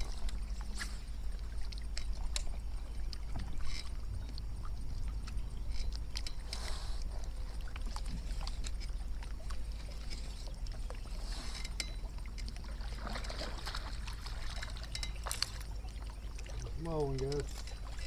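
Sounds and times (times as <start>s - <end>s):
small waves lapping against hull: 0.0s - 18.0s
steady low rumble: 0.0s - 18.0s
light clicks and ticks: 14.7s - 18.0s.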